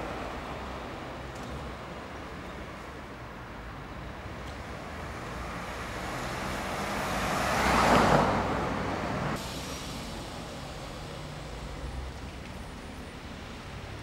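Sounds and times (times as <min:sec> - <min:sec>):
car passing by: 0:04.4 - 0:12.2.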